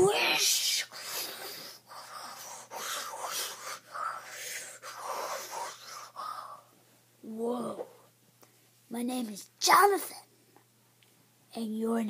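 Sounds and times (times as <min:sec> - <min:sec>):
boy breathing heavily: 0:00.0 - 0:06.8.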